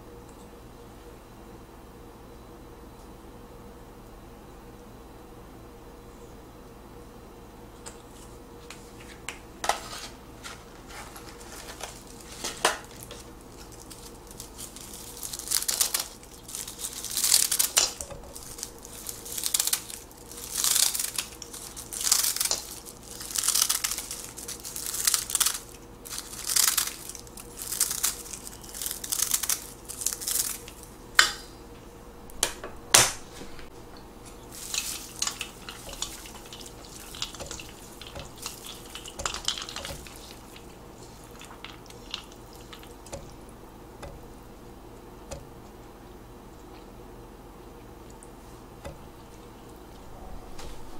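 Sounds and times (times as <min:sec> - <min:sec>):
chopsticks stirring noodles: 0:34.2 - 0:45.8.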